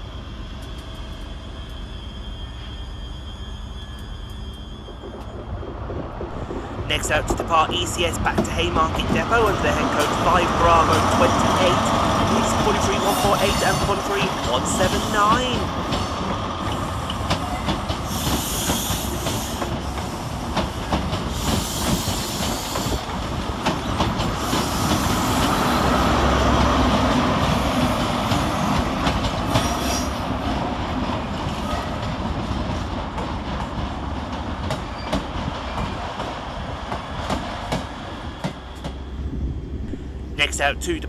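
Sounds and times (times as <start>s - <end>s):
diesel train engines: 0.0s - 41.0s
wheels rumbling on rails: 0.0s - 41.0s
high-pitched squeals: 0.8s - 6.6s.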